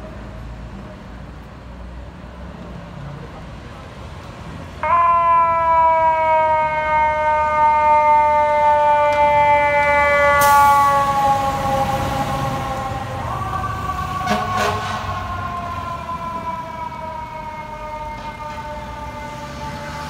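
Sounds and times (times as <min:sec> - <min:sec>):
truck engine rumble: 0:00.0 - 0:20.0
fire engine siren wailing: 0:04.8 - 0:20.0.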